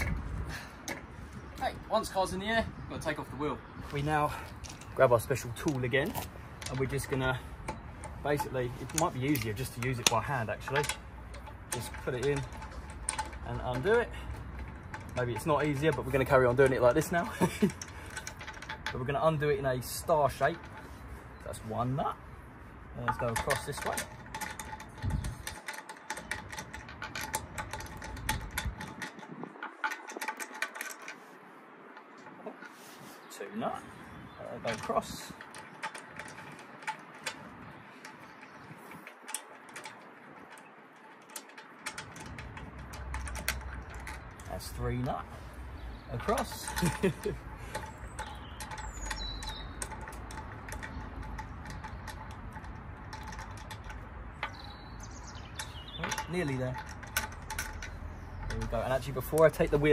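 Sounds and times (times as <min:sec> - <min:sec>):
ratchet wheel tool clicking: 0:45.5 - 0:59.9.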